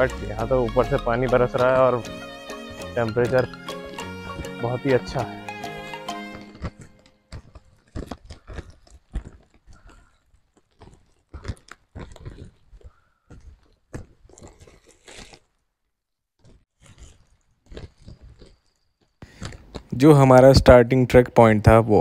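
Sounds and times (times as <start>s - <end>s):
footsteps crunching on wet dirt: 0.0s - 15.6s.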